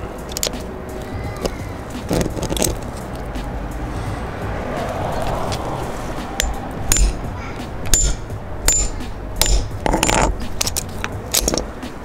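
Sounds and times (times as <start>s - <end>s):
hammer striking metal crimper: 6.4s - 11.7s.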